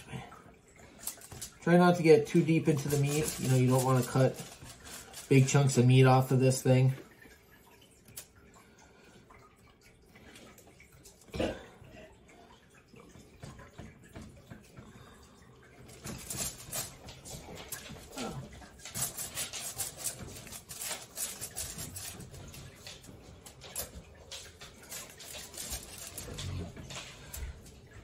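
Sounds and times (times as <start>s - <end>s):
foil crinkling: 1.0s - 6.4s, 16.1s - 23.9s, 24.5s - 27.6s
knife slicing and scraping meat: 18.9s - 22.2s.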